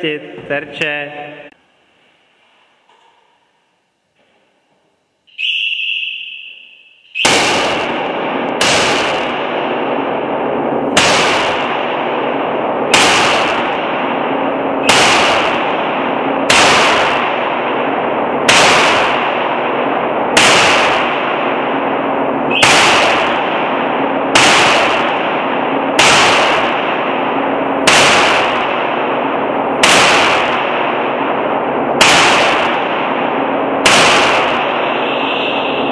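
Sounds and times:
high steady tone: 5.3 - 7.4
continuous loud hiss: 6.8 - 35.9
gunshots: 7.2 - 35.9.

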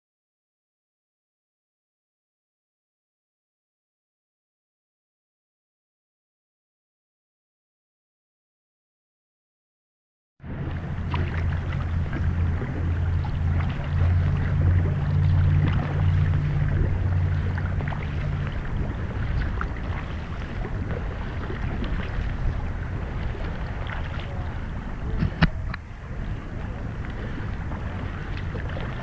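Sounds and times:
kayak paddle strokes in water: 10.4 - 29.0
low steady hum: 10.4 - 29.0.

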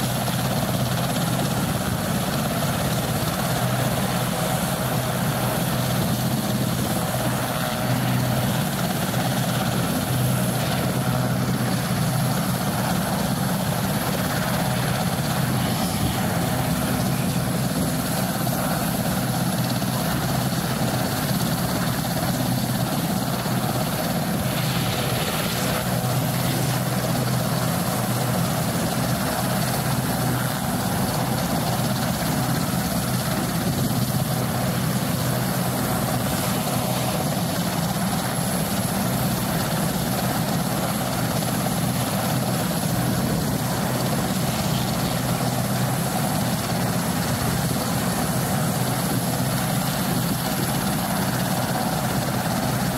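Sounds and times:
helicopter engines and rotors droning: 0.0 - 52.9.

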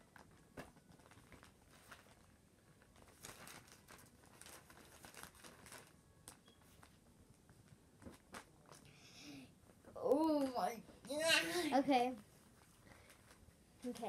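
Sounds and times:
paper rustling and crinkling: 0.0 - 8.9, 12.5 - 14.0.

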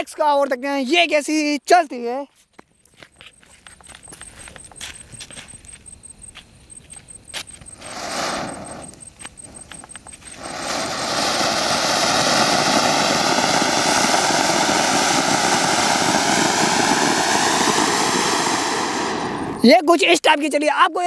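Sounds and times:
firework fountain hissing and crackling: 7.5 - 19.8.

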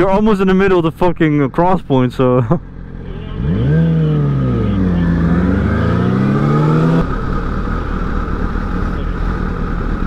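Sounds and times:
motorcycle engine accelerating: 2.5 - 10.0.

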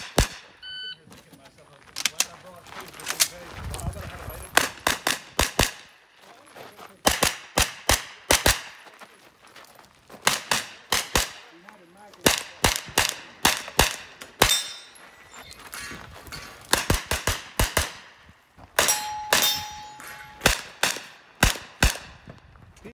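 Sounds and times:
carbine gunshots with echo: 0.0 - 0.6, 4.6 - 6.1, 7.0 - 8.8, 10.2 - 14.9, 16.7 - 22.2.

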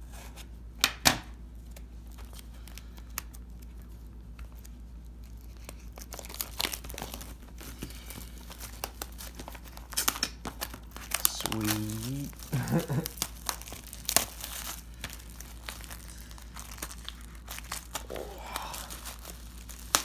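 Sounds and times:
plastic wrap crinkling and tearing: 1.6 - 20.0.

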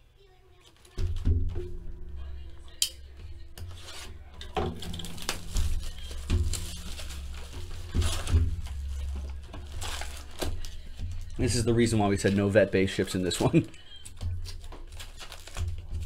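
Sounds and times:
plastic shrink wrap tearing: 3.6 - 16.0
card packs rustling: 3.7 - 16.0.

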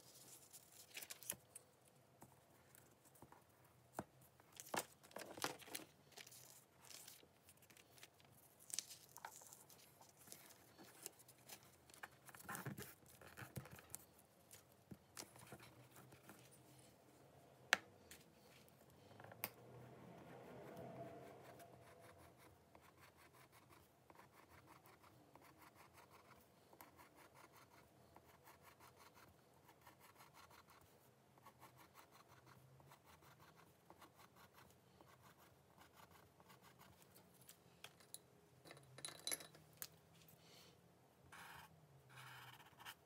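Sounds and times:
pencil scratching on paper: 20.2 - 37.0, 41.3 - 43.0.

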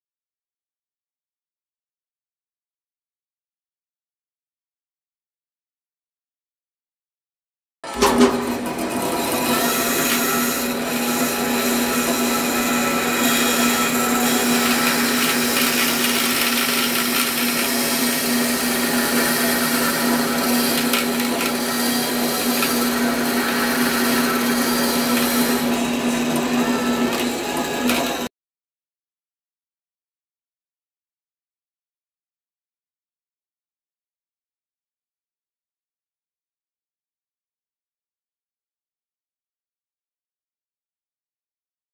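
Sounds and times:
bandsaw running: 7.8 - 28.3.

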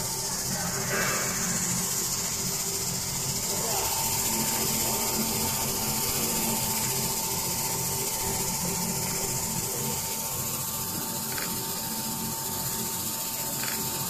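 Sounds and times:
low hum: 0.0 - 10.4
corona discharge hiss: 0.0 - 14.0
thin steady whine: 0.0 - 14.0.

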